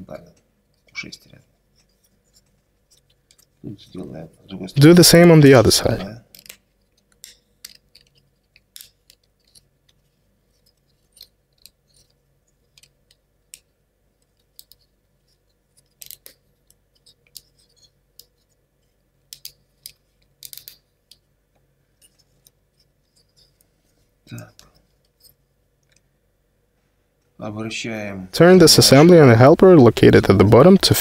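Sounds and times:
wooden parts clicking together: 6.3 - 10.0, 10.6 - 18.4, 19.3 - 21.2.

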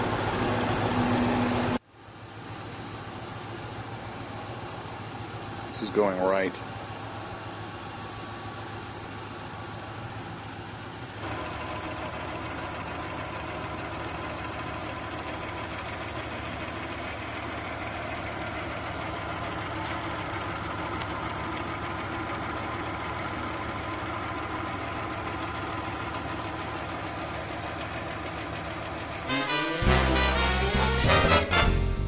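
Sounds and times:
lathe running hum and whine: 6.6 - 28.9.

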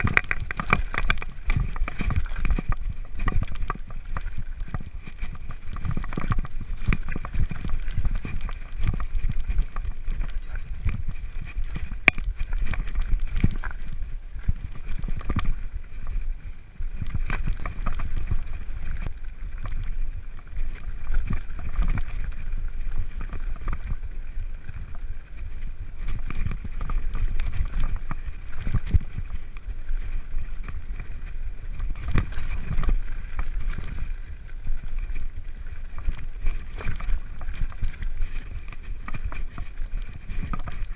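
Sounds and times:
bike knocks and rattles: 0.0 - 16.2, 16.9 - 40.9
bike tyres rumbling over stones: 0.0 - 40.9.

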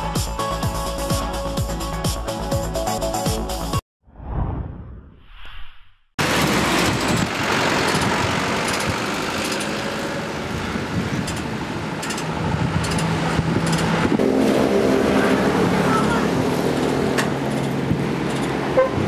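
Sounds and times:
engine hum: 6.2 - 19.0
road traffic noise: 6.2 - 19.0.

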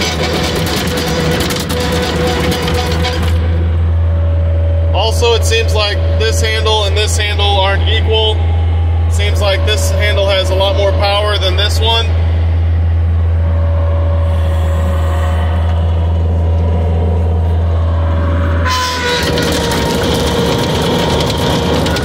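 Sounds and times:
track clatter: 0.0 - 4.0, 15.6 - 22.0
diesel engine humming: 0.0 - 22.0
steady whine: 0.0 - 22.0.

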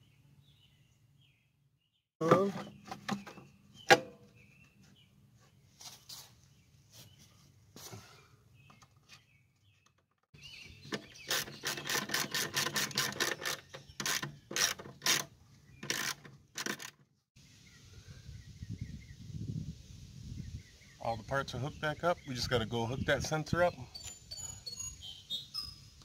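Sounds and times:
tools clicking and rattling on metal: 10.9 - 17.0.

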